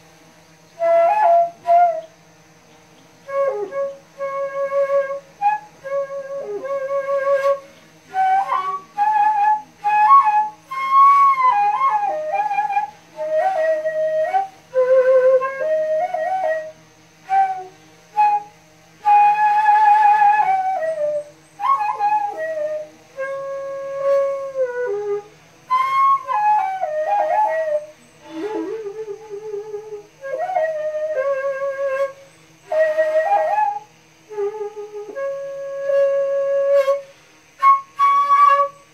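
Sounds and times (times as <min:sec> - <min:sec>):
bamboo flute melody: 0:00.7 - 0:02.2, 0:03.2 - 0:38.9.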